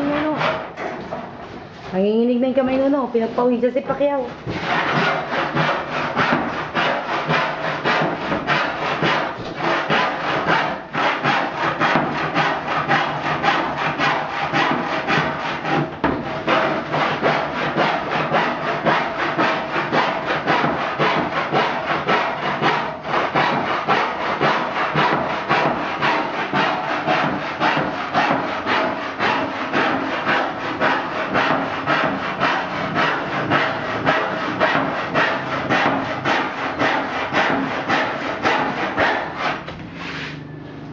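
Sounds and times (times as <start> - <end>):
handsaw cutting wood: 0.0 - 0.9, 2.8 - 40.5.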